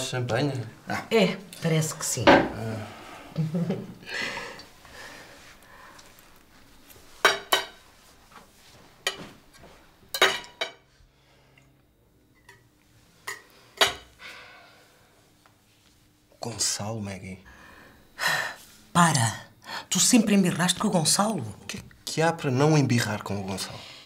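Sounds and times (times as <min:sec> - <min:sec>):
glassware and dishes clinking: 0:10.1 - 0:10.8.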